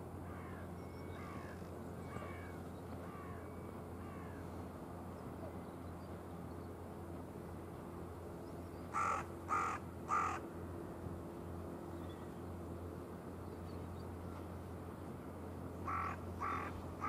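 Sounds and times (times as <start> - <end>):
bird giving harsh calls: 9.0 - 10.4.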